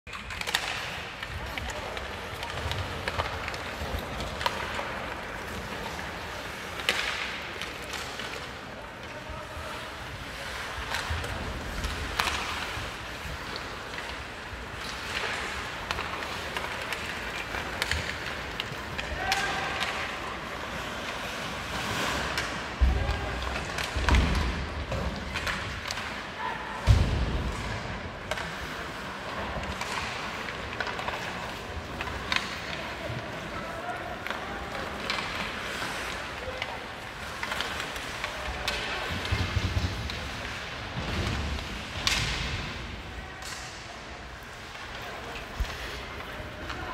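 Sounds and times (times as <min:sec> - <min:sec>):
hockey sticks and puck clicking: 0:00.1 - 0:09.3, 0:10.1 - 0:46.9
stick hitting puck: 0:14.8 - 0:20.2.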